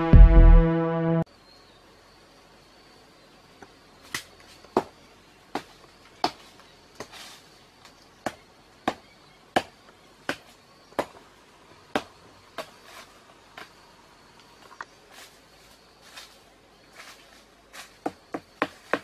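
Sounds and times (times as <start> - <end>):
footsteps crunching on dry leaves: 15.0 - 18.0.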